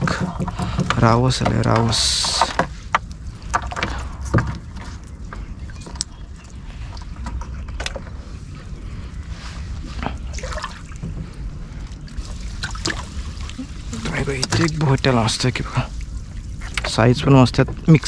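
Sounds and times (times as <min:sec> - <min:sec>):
steady low rumble: 0:00.0 - 0:18.0
small water splashes and drips: 0:10.0 - 0:17.0.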